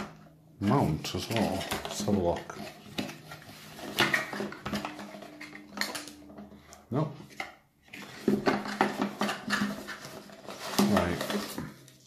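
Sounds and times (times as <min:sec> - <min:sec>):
plastic bags crinkling: 0:08.0 - 0:12.0.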